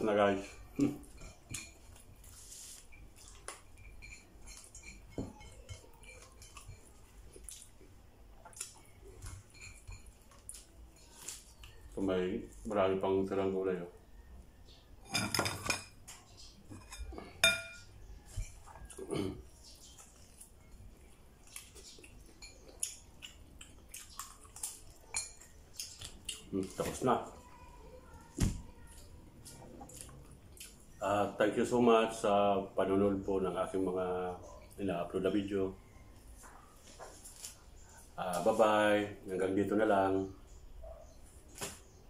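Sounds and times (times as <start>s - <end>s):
person chewing: 5.7s - 12.0s, 18.2s - 26.9s, 28.8s - 31.0s.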